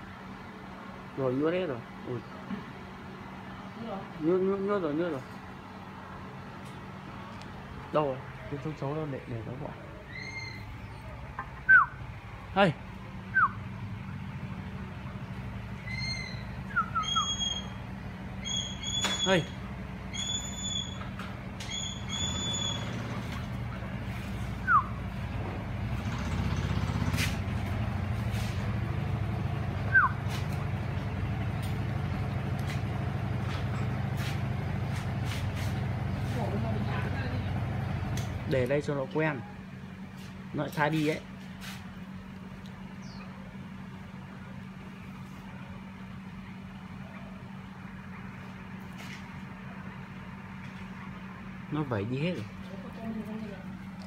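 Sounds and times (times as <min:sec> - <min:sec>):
low machine hum: 0:00.0 - 0:54.0
high whistle: 0:16.1 - 0:17.8.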